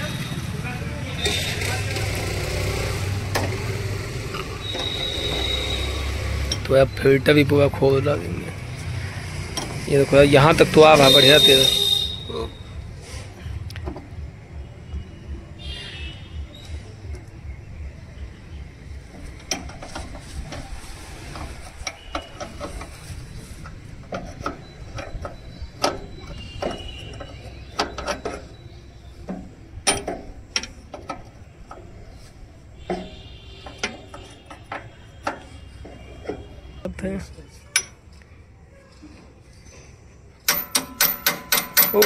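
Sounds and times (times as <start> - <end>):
spanner clicking on metal fittings: 40.4 - 42.0.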